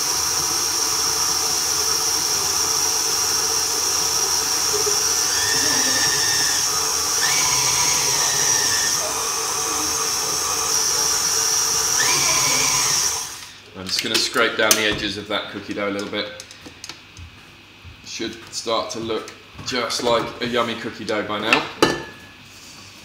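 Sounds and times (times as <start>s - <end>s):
stand mixer motor whining: 0.0s - 13.6s.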